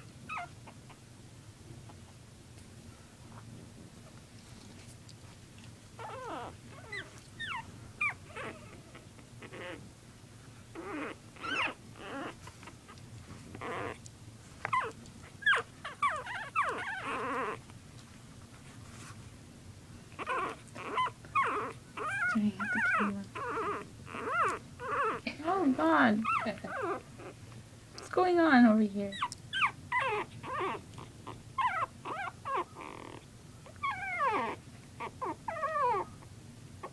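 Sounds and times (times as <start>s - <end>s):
puppies grumbling cries: 0.0s - 1.0s, 6.0s - 9.9s, 10.7s - 14.0s, 14.7s - 17.6s, 20.1s - 28.2s, 29.1s - 36.9s
puppies whimpering and yelping: 0.0s - 1.1s, 6.0s - 9.9s, 10.7s - 14.0s, 14.6s - 17.6s, 20.1s - 28.2s, 29.1s - 36.9s.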